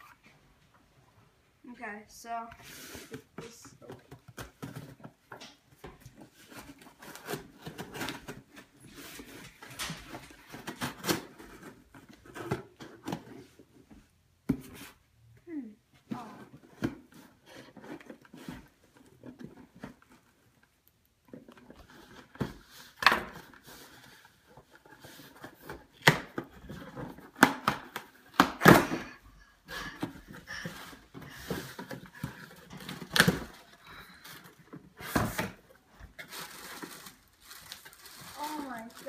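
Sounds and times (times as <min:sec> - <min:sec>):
plastic packing rustling: 0:16.6 - 0:39.0.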